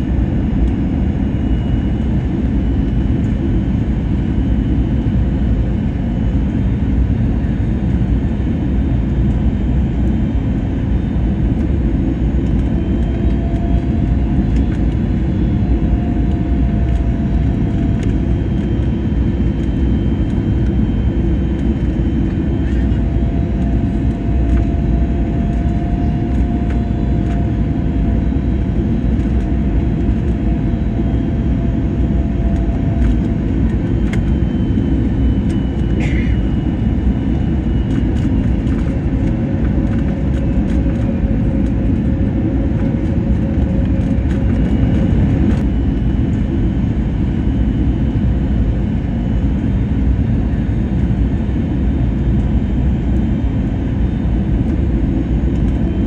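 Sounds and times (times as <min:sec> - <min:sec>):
airliner engine and airflow rumble: 0:00.0 - 0:56.0.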